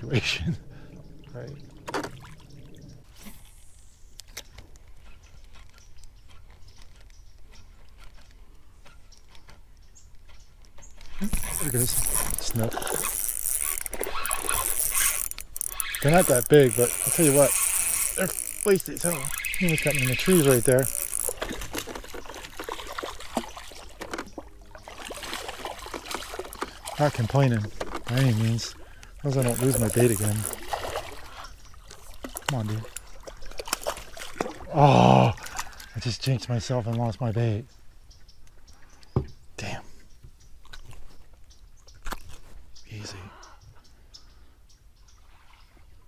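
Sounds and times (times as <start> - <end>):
water dripping: 10.6 - 36.1.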